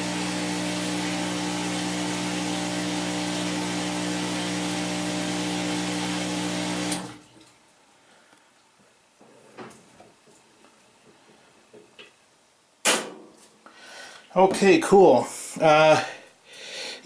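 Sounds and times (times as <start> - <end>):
washing machine spinning: 0.0 - 7.2
water being pumped out: 0.0 - 7.2.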